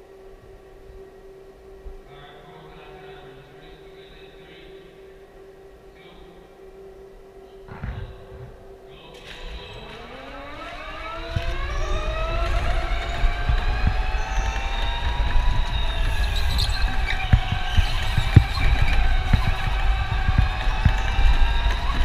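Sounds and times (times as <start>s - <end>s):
electric go-kart motor whining: 9.2s - 22.0s.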